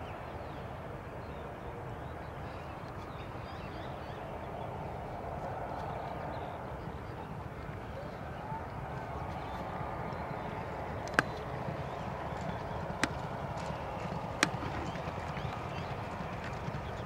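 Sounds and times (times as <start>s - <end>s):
horses galloping: 5.2s - 17.0s
sharp clicks: 11.0s - 11.4s, 14.4s - 14.9s.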